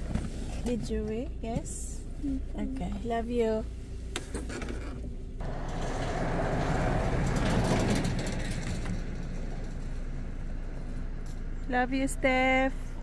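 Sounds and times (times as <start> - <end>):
vehicle passing: 5.4 - 13.0.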